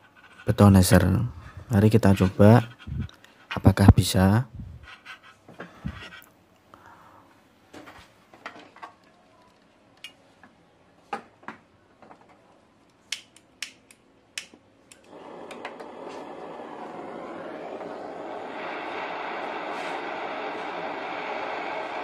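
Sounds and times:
gas torch flame hissing: 15.1 - 22.0.

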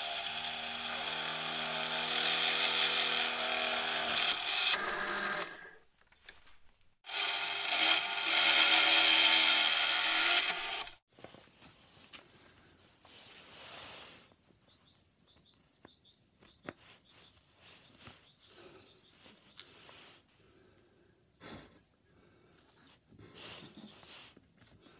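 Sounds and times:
drill press boring into wood: 0.0 - 5.8, 7.1 - 11.0.

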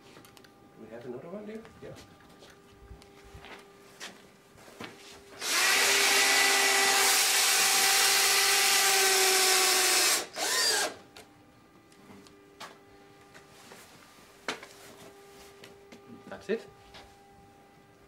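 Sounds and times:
cordless drill driving screw: 5.4 - 11.0.

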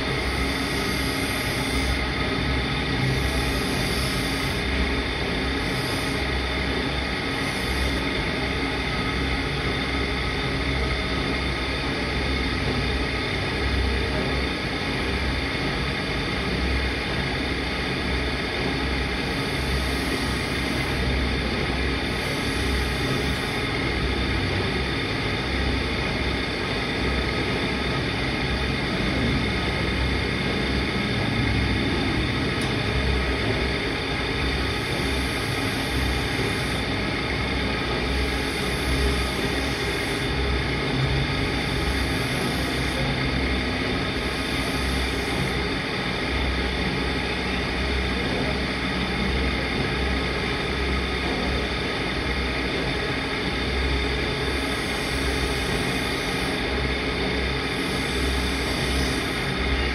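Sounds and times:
knife blade hissing on wheel: 0.0 - 8.4, 19.1 - 21.2, 22.1 - 23.8, 34.5 - 36.9, 37.9 - 40.4, 41.5 - 43.2, 44.1 - 45.6, 54.4 - 56.8, 57.6 - 59.6
grinding wheel humming: 0.0 - 49.0, 49.6 - 59.9.

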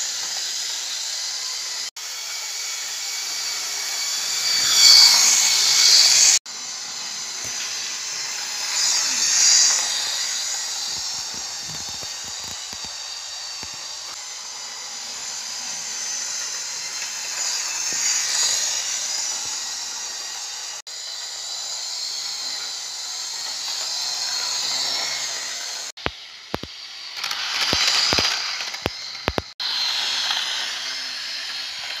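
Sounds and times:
model train motors whirring: 0.0 - 32.0
sharp clicks: 26.0 - 29.6.

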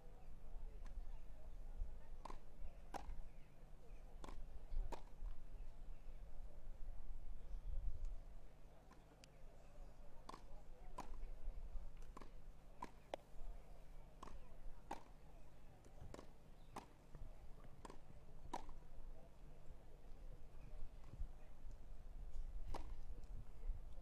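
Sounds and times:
tennis balls struck by racquets: 2.2 - 3.5, 4.2 - 5.4, 10.1 - 18.9, 22.6 - 23.3.

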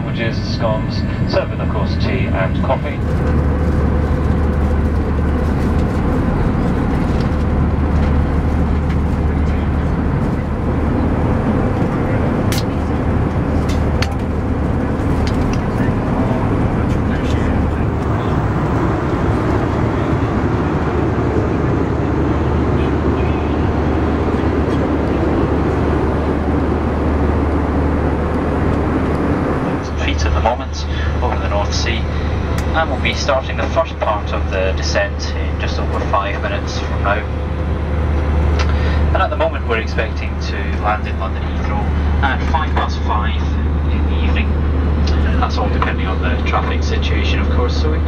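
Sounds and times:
aircraft engine and airflow drone: 0.0 - 48.0
steady higher hum: 0.0 - 48.0.

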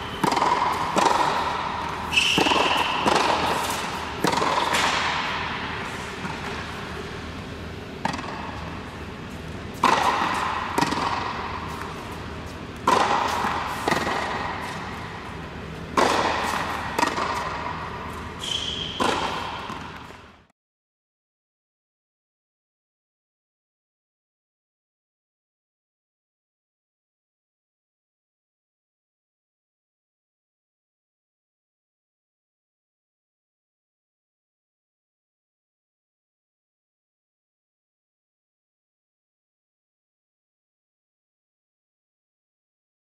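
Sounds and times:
tennis ball bouncing on hard court: 0.0 - 20.5
tennis ball struck by rackets: 0.1 - 20.3.

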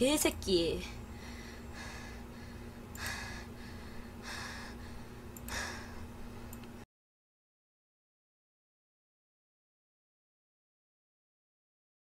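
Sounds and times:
steady low hum: 0.0 - 6.8
woman breathing: 1.0 - 6.6.

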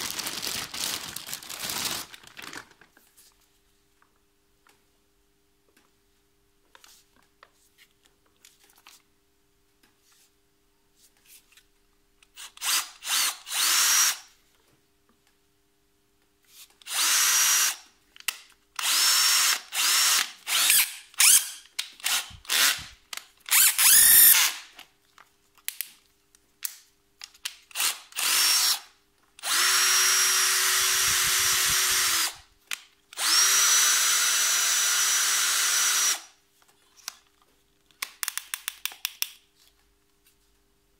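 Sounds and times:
cordless drill motor whine: 12.6 - 14.2, 16.9 - 17.8, 18.8 - 21.5, 23.5 - 24.5, 27.8 - 28.8, 29.4 - 32.4, 33.2 - 36.2.

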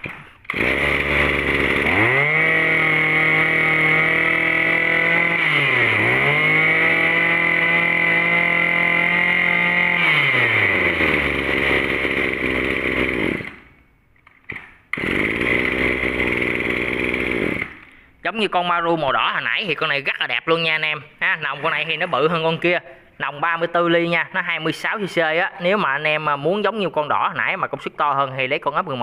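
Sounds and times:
brush cutter engine revving: 0.0 - 13.8, 14.5 - 17.9, 21.2 - 22.8.

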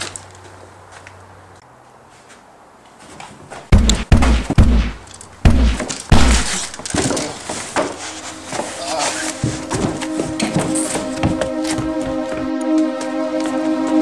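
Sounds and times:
gunshots: 3.7 - 6.8.

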